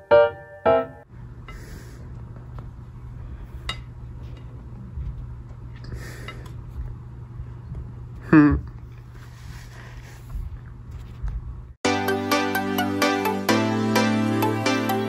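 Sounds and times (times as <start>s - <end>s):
steady low hum: 1.0s - 11.8s.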